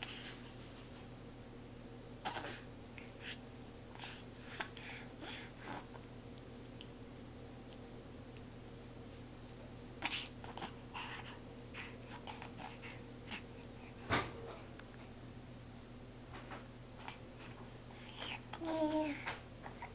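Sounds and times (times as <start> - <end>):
baby breathing: 10.0 - 14.0.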